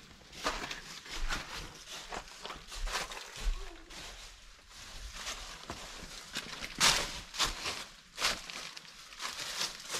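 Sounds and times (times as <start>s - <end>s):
footsteps crunching dry leaves: 0.0s - 9.9s.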